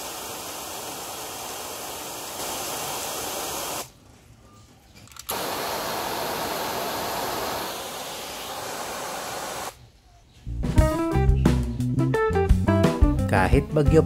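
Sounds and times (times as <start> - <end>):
hose nozzle spraying water: 0.0 - 3.9, 5.3 - 9.8.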